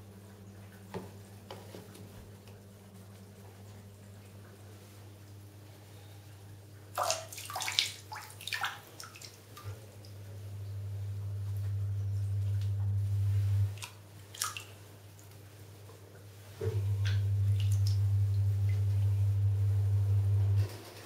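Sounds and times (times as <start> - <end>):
bathwater splashing: 6.9 - 15.4, 16.6 - 19.2
low hum: 10.5 - 13.8, 16.6 - 20.7.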